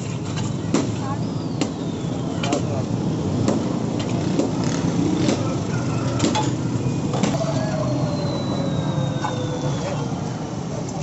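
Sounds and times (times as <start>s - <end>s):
street traffic din: 0.0s - 11.0s
faint falling whine: 6.8s - 11.0s.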